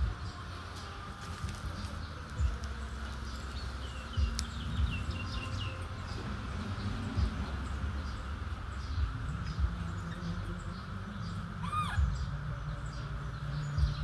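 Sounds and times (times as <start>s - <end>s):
birds chirping: 0.0s - 14.0s
steady insect hum: 0.0s - 14.0s
low thumps and rumble: 1.5s - 3.0s, 3.8s - 11.4s, 12.0s - 14.0s.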